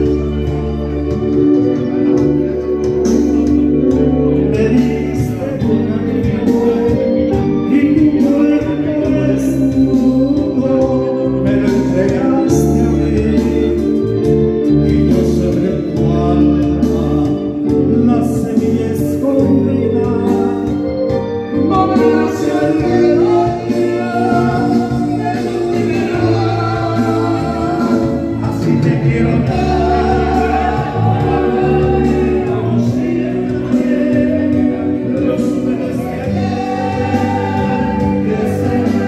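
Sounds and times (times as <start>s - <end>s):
amplified music with bass: 0.0s - 39.0s
man singing into microphone: 0.0s - 39.0s.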